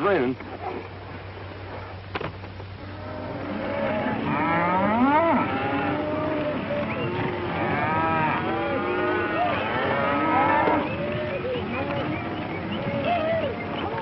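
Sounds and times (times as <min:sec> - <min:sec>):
cattle lowing: 0:02.8 - 0:14.0.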